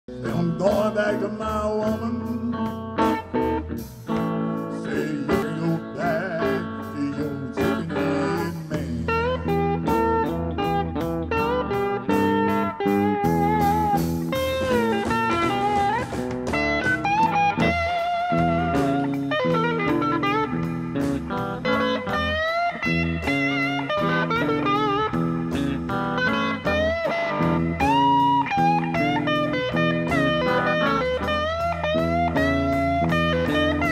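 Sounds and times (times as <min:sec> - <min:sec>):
bass and drums: 0:00.1 - 0:33.9
electric guitar lead: 0:00.1 - 0:33.9.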